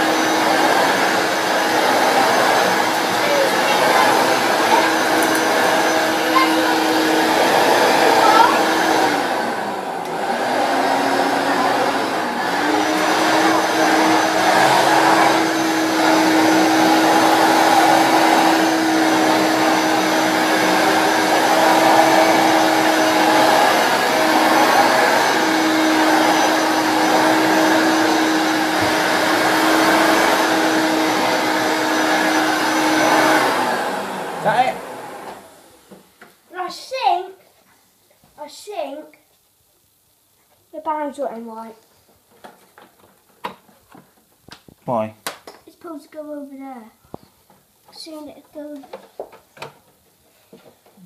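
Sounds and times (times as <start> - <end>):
upright vacuum cleaner running: 0.0 - 36.1.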